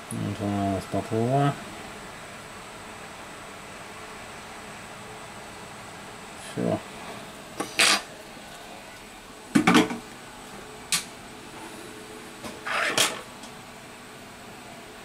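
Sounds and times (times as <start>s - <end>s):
tools being set down: 9.6s - 10.0s.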